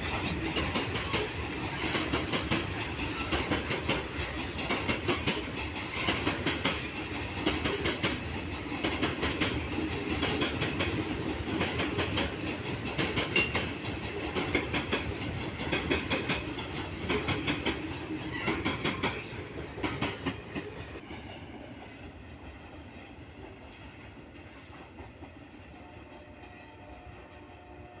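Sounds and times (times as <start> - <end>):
train wheels clattering over rail joints: 0.0 - 26.3
train rumble: 0.0 - 28.0.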